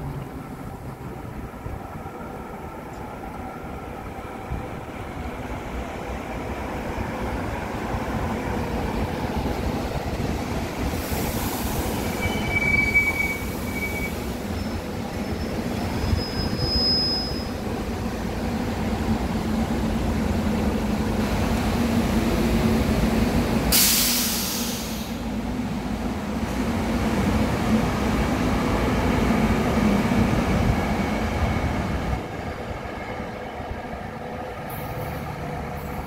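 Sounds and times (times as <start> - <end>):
train rumbling past: 0.0 - 36.0
air hiss: 10.8 - 12.2, 23.7 - 25.3
train wheels squealing: 11.1 - 17.7.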